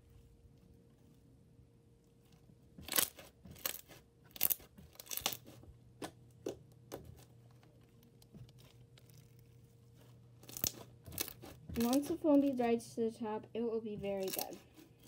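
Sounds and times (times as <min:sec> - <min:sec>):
foam beads crunching and popping: 0:02.8 - 0:05.6, 0:07.2 - 0:12.7, 0:14.0 - 0:15.0.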